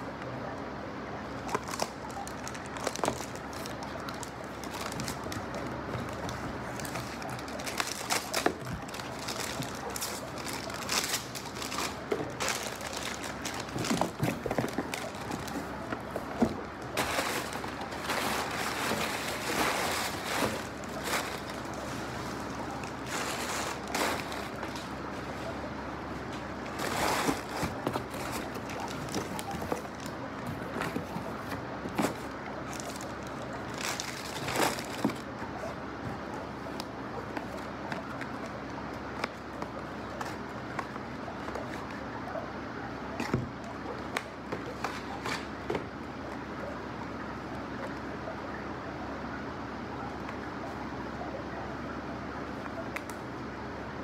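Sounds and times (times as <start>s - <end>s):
cardboard packaging rustling: 1.3s - 42.2s.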